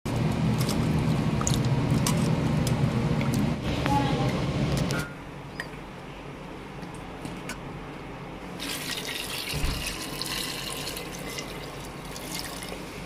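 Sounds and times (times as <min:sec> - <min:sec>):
tap water running: 0:08.6 - 0:12.8.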